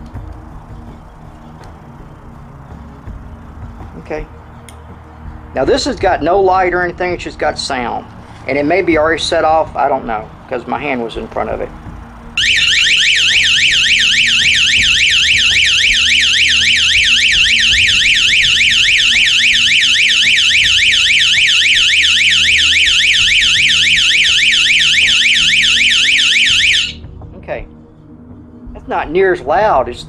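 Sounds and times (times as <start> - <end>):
electronic alarm siren warbling: 12.4 - 27.0.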